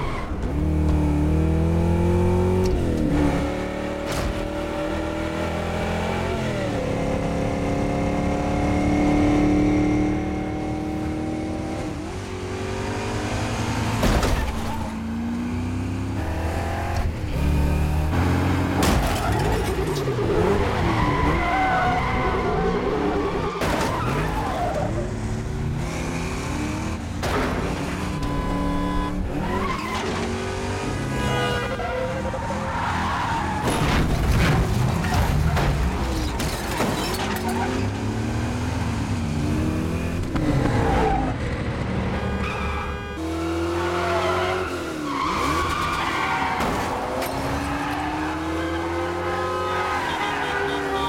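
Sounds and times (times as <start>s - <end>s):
tires squealing: 19.0s - 25.2s, 27.8s - 30.5s, 31.2s - 34.1s, 43.6s - 51.0s.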